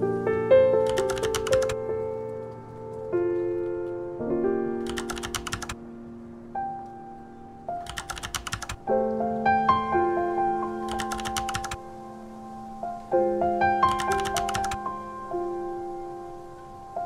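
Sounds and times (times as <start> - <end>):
soft piano-like keyboard chords: 0.0 - 17.0
rapid clicking percussion: 0.9 - 1.8, 4.9 - 5.8, 7.8 - 8.8, 10.9 - 11.8, 13.9 - 14.8.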